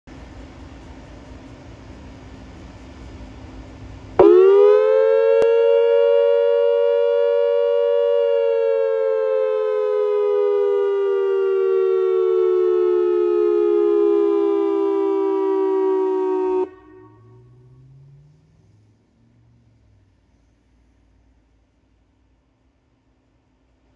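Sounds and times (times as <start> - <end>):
dual-tone warning siren: 4.2 - 18.2.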